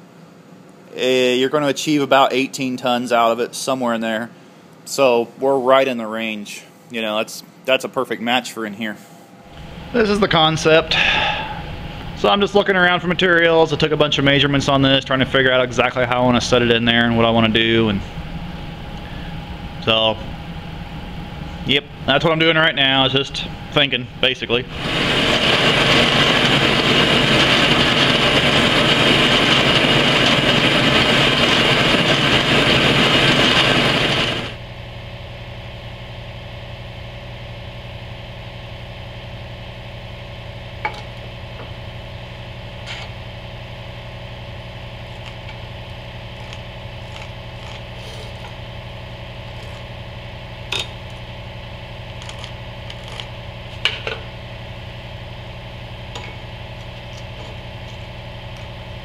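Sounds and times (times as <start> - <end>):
steady hum: 0.0 - 59.0
bandsaw cutting steel: 21.7 - 34.6, 46.3 - 48.6.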